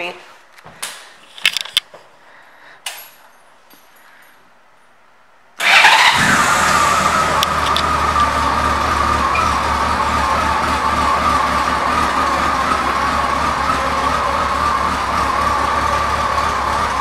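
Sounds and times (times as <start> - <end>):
motorcycle engine starting and idling: 5.6 - 17.0.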